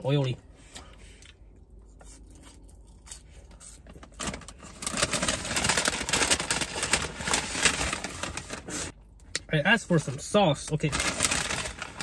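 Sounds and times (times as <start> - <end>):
takeout bag rustling: 4.2 - 8.9, 10.9 - 12.0.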